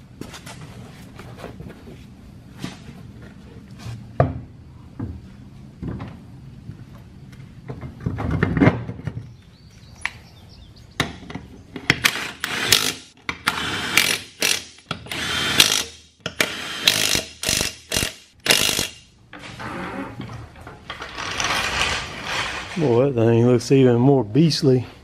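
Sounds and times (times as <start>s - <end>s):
impact wrench hammering: 11.9s - 19.1s.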